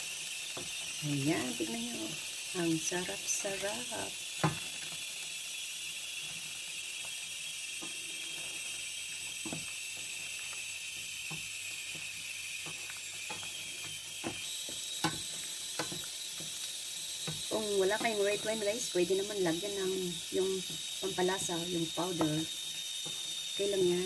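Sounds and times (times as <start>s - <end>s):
hiss from hot pan: 0.0s - 24.0s
spoon scraping and knocking pan: 11.0s - 18.5s.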